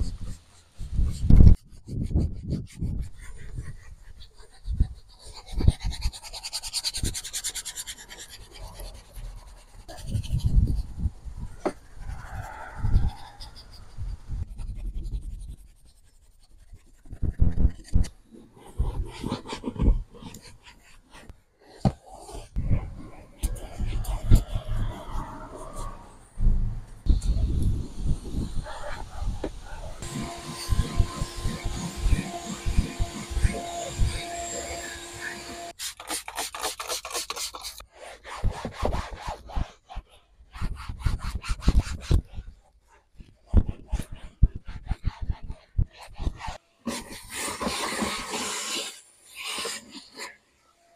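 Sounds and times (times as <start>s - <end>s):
brush scrubbing leather seat: 28.6s - 37.5s.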